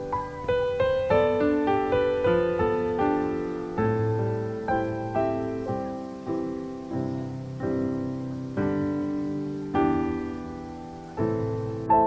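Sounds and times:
slow piano chords: 0:00.0 - 0:12.0.

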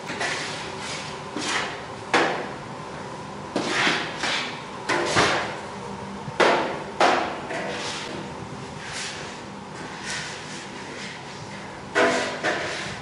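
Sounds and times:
metal paddle scraping a steel kettle: 0:12.0 - 0:13.0.

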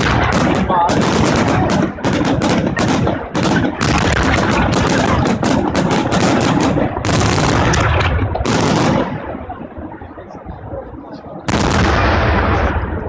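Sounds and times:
fireworks barrage bangs: 0:00.0 - 0:09.8, 0:11.5 - 0:13.0
fireworks crackling: 0:00.0 - 0:10.0.

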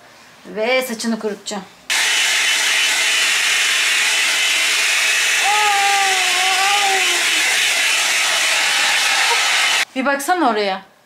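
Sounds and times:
hair dryer running: 0:01.9 - 0:09.9
high voice: 0:05.4 - 0:07.6.

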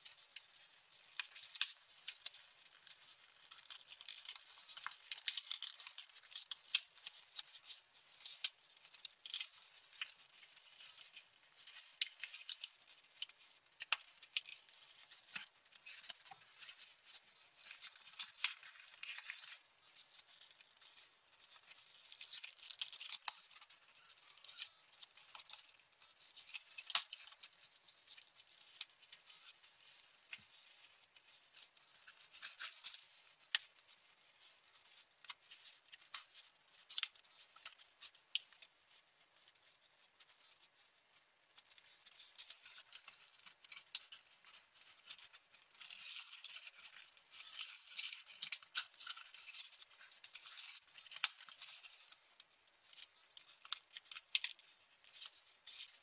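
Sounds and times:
paper crinkling and rustling: 0:00.0 - 0:56.0.

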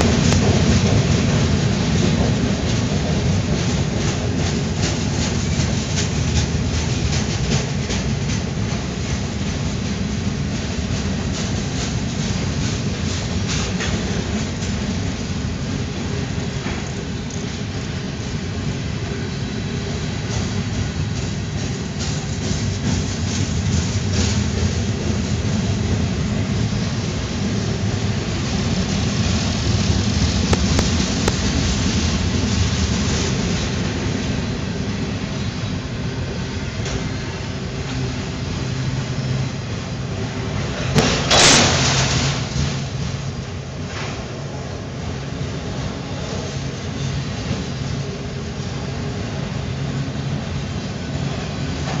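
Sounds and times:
wheels clacking over rail joints: 0:00.0 - 0:19.2, 0:19.8 - 0:34.4, 0:38.9 - 0:44.6
train wheels rumbling on rails: 0:00.0 - 0:52.0.

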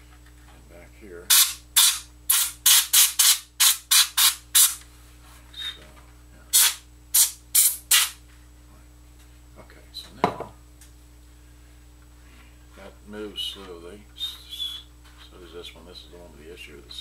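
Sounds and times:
compressed air hissing blasts: 0:01.3 - 0:04.8, 0:06.5 - 0:08.2.

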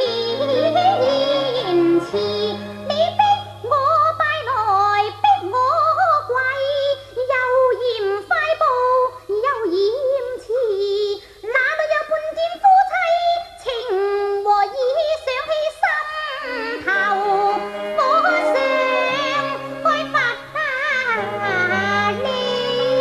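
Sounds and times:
accompanying instruments: 0:00.0 - 0:06.9, 0:16.1 - 0:23.0
opera singing voice: 0:00.0 - 0:23.0.

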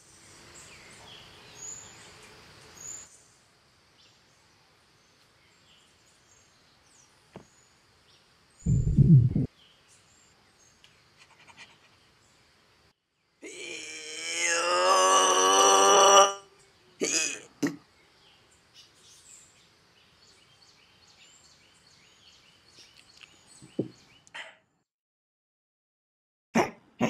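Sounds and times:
faint insects: 0:00.0 - 0:24.3
low stomach growl: 0:08.7 - 0:09.5.

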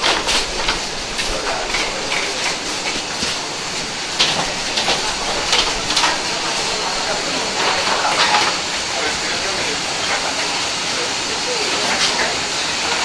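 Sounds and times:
footsteps: 0:00.0 - 0:08.6
suitcase wheels rolling: 0:00.0 - 0:08.6.

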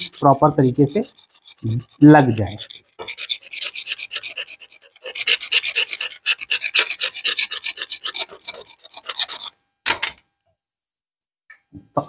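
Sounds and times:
blade scraping wood: 0:00.0 - 0:09.6.

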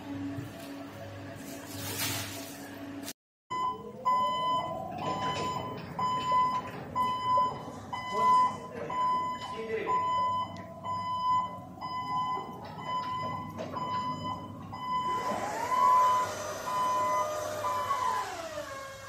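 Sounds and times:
warning alarm beeping: 0:03.5 - 0:18.4
electric motor whining: 0:15.0 - 0:19.0.

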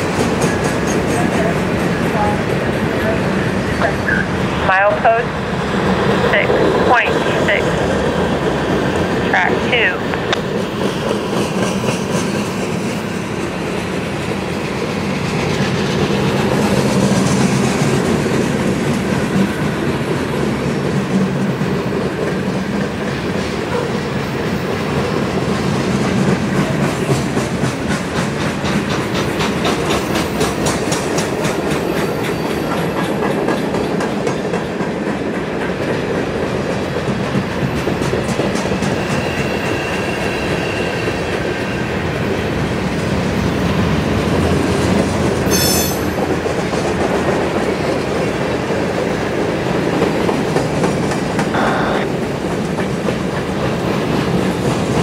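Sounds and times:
train wheels clicking: 0:00.0 - 0:03.6, 0:10.1 - 0:41.5, 0:44.7 - 0:51.6
freight train wheels rumbling: 0:00.0 - 0:55.0.

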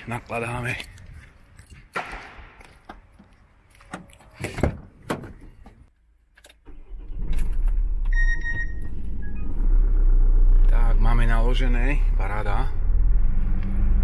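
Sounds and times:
van engine rumbling: 0:06.8 - 0:14.0.

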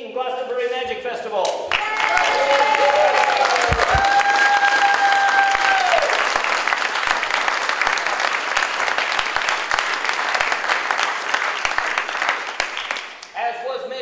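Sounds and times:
crowd applauding: 0:01.7 - 0:13.4.

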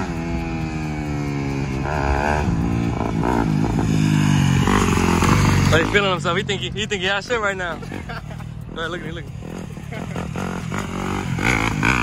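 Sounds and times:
dirt bike engine revving: 0:00.0 - 0:06.6, 0:09.3 - 0:12.0.

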